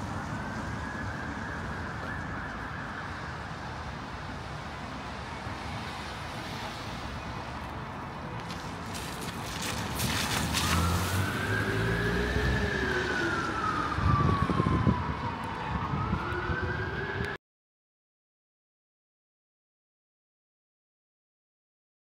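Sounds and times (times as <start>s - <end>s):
emergency siren wailing: 0.0s - 6.2s, 10.0s - 17.4s
city street traffic rumble: 0.0s - 17.4s.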